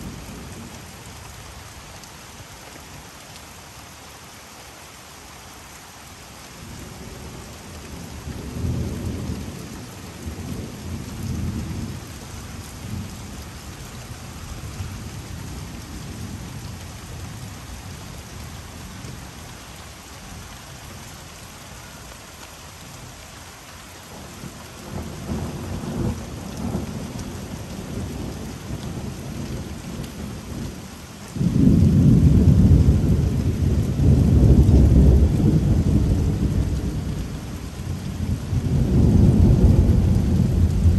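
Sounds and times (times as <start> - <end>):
steady rain: 0.0 - 40.9
rolling thunder: 31.4 - 37.2, 38.0 - 40.9.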